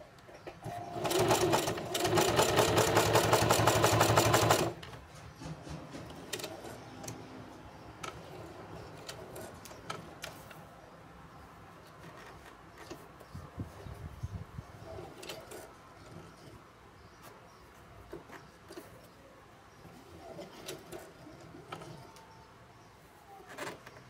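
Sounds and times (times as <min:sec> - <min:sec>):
sewing machine stitching: 0:00.6 - 0:04.8.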